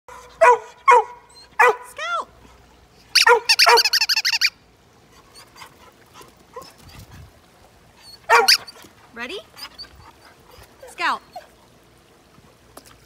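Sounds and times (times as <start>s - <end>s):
dog barking: 0.1s - 1.9s, 3.2s - 3.9s, 8.3s - 8.6s
dog yipping: 0.1s - 1.9s, 3.1s - 4.6s, 8.0s - 8.8s.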